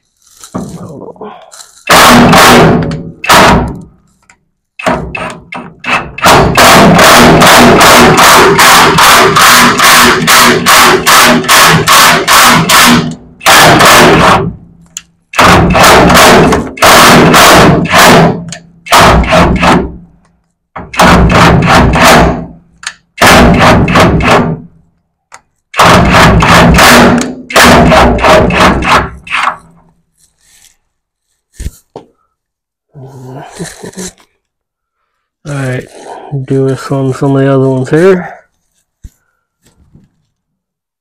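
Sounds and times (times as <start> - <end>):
power tool rapid hammering: 1.9 - 3.8, 4.8 - 14.7, 15.3 - 20.1, 20.8 - 24.8, 25.7 - 29.6.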